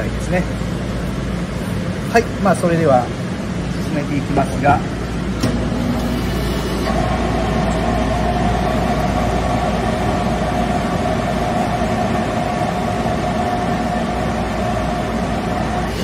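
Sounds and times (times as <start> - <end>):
steady whine: 0.0 - 16.0.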